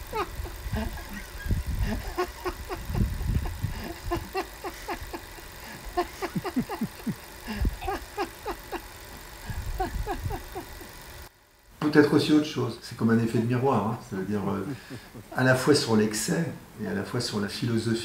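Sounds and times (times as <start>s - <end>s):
person laughing: 0.0s - 10.9s, 14.2s - 15.7s
wind rumble on microphone: 0.6s - 2.0s, 2.8s - 3.9s.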